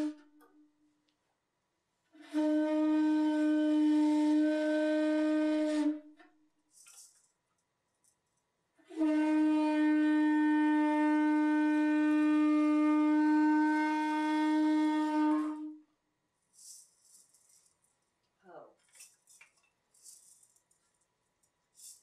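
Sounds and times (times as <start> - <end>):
hand-held horn long note: 0.0 - 0.7, 2.1 - 6.3, 8.8 - 15.8.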